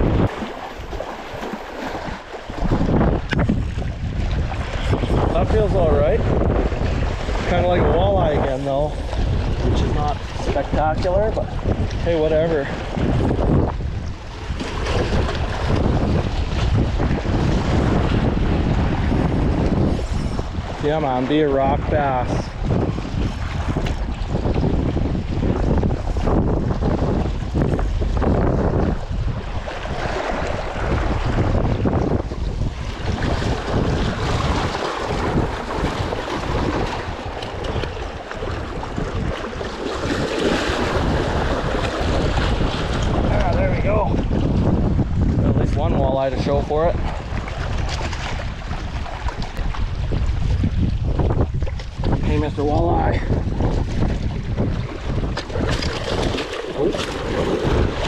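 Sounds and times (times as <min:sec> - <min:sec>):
small waves washing against rocks: 0:00.0 - 0:58.0
wind buffeting microphone: 0:00.0 - 0:58.0
small waves splashing on rocks: 0:00.2 - 0:05.7, 0:32.6 - 0:44.3, 0:46.9 - 0:50.4, 0:53.7 - 0:58.0.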